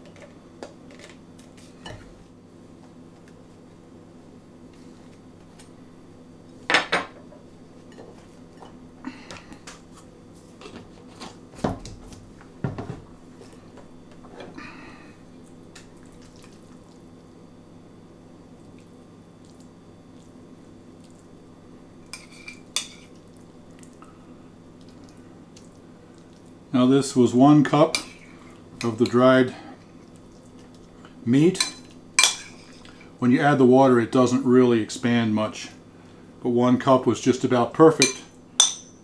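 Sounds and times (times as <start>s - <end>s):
faint steady hum: 0.0s - 39.0s.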